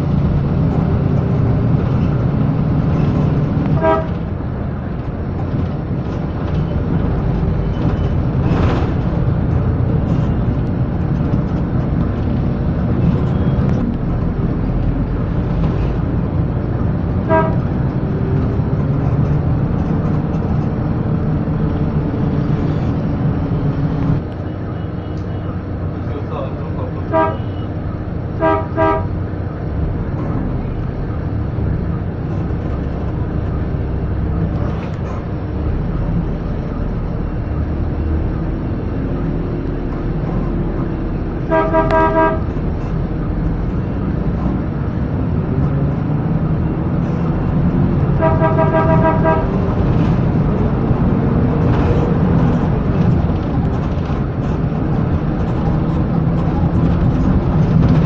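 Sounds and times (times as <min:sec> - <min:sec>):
bus engine low rumble: 0:00.0 - 0:58.0
vehicle horn: 0:03.8 - 0:04.3, 0:17.2 - 0:17.7, 0:27.1 - 0:27.7, 0:28.4 - 0:29.1, 0:41.4 - 0:42.6, 0:48.2 - 0:49.7.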